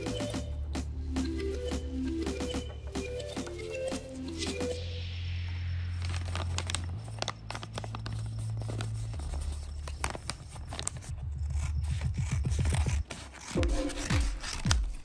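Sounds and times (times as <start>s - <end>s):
low background music note: 0.0s - 15.0s
paper rustling and crinkling: 6.0s - 15.0s.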